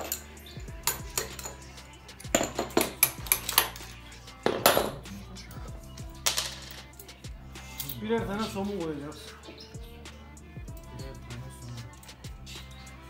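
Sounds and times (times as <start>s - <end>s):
metal tools clinking: 0.0s - 5.0s, 6.2s - 8.6s.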